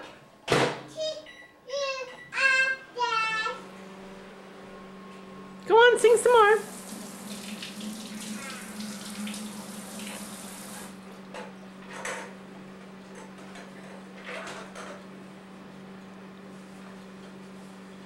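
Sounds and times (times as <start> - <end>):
steady electrical hum: 0.0 - 18.0.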